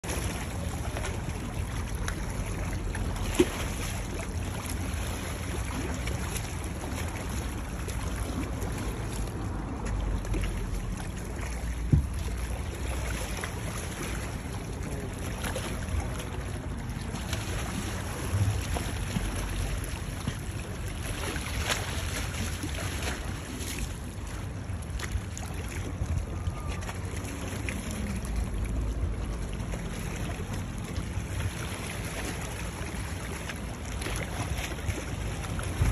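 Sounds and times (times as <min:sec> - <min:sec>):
waves lapping on stony shore: 0:00.0 - 0:35.9
wind buffeting microphone: 0:35.3 - 0:35.9.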